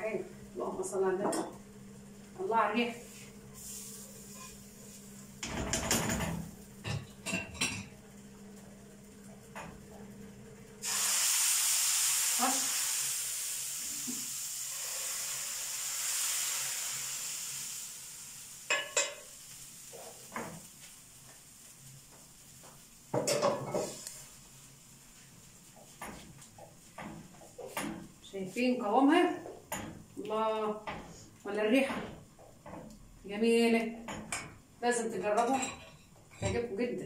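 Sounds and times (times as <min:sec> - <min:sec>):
food sizzling in a stew: 0:02.1 - 0:05.6, 0:10.8 - 0:29.9.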